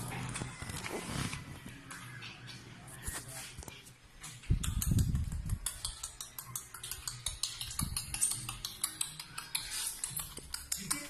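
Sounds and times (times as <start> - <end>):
puppy claws clicking on tile: 4.2 - 11.0.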